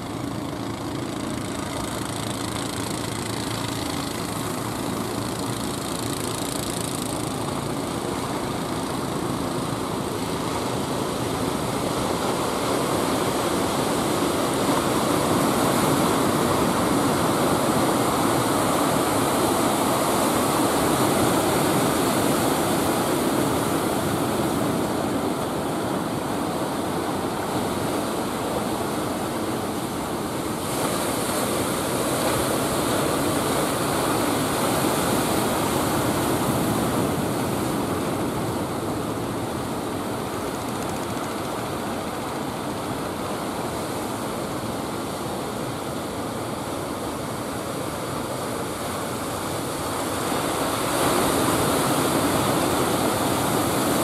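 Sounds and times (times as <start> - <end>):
ocean surf breaking: 10.9 - 54.0.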